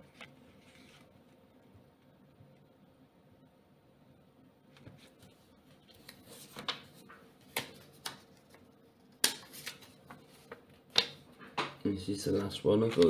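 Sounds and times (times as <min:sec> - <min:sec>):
paper banknotes crinkling: 0:09.4 - 0:10.8.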